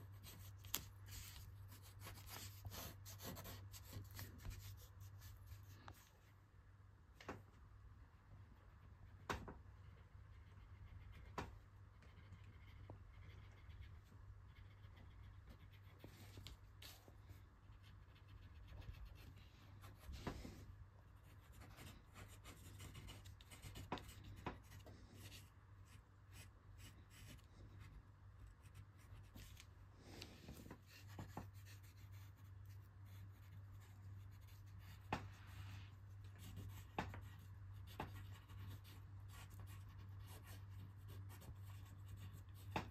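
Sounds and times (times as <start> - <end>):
pencil scratching on paper: 0.0 - 6.0, 9.8 - 20.5, 21.1 - 28.0, 30.5 - 42.9
low steady hum: 0.0 - 42.9.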